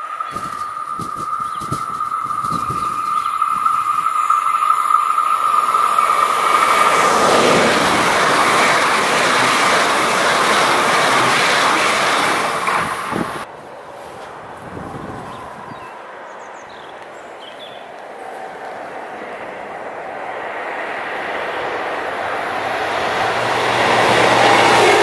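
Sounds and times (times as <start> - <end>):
high-pitched ringing tone of train: 0.0 - 13.4
train passing with wheel noise: 0.0 - 25.0.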